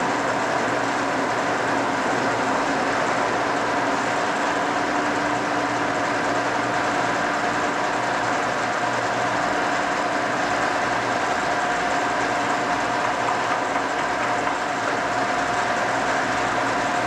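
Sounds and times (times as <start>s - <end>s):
milling machine humming: 0.0s - 17.0s.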